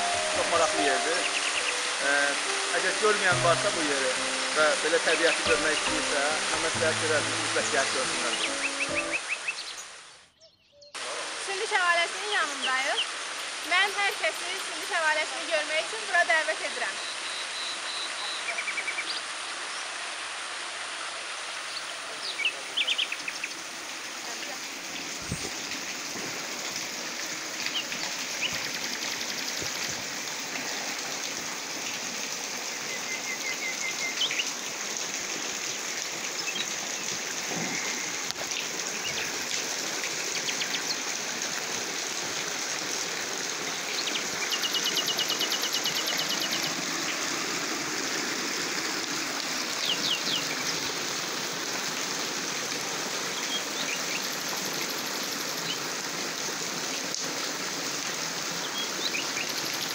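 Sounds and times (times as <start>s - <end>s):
stream running over rock: 0.0s - 10.3s, 11.0s - 59.9s
birds chirping: 0.0s - 11.0s, 16.6s - 19.9s, 21.5s - 23.8s, 27.5s - 29.8s, 32.7s - 34.7s, 35.7s - 39.5s, 43.7s - 47.4s, 49.5s - 51.0s
bird trill: 8.3s - 10.9s.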